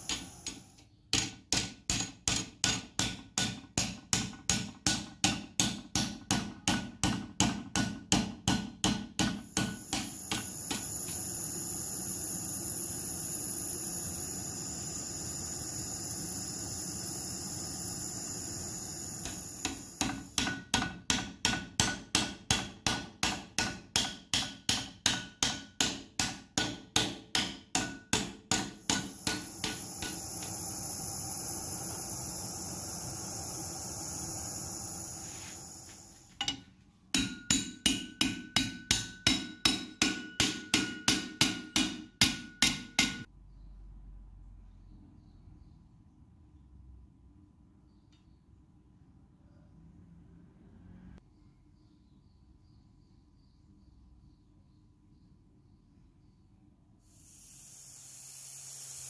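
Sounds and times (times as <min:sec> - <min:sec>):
gas torch hissing: 0:00.0 - 0:04.2, 0:09.2 - 0:20.9, 0:25.8 - 0:36.5, 0:57.1 - 0:59.0
hammer striking hot metal: 0:00.0 - 0:43.3.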